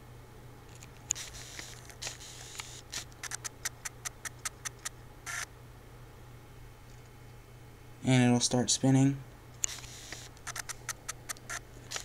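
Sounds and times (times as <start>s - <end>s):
low steady hum: 0.0s - 12.0s
small even clicks: 9.6s - 12.0s.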